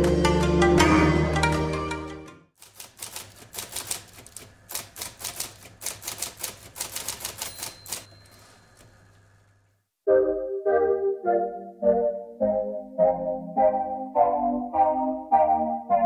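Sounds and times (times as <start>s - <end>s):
typewriter keystrokes: 2.6s - 9.4s.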